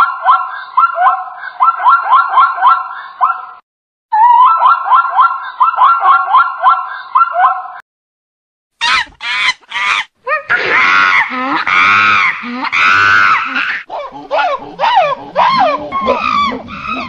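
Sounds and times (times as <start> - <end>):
zebra barking yelps: 0.0 - 3.6, 4.2 - 7.8, 8.8 - 17.0
monkey screeching: 8.8 - 17.0.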